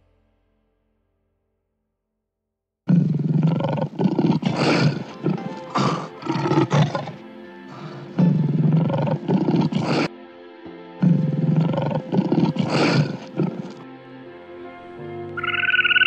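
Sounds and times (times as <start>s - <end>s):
lion roaring: 2.9s - 10.1s, 11.0s - 13.8s.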